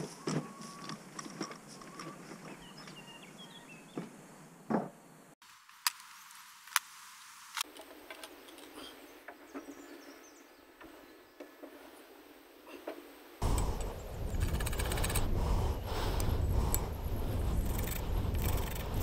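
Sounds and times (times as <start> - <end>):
small birds chirping: 0.1 - 4.5, 13.4 - 19.0.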